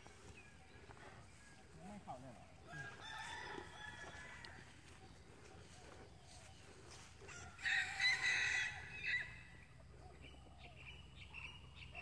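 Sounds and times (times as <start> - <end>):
rooster crowing: 2.7 - 4.8, 7.2 - 9.5.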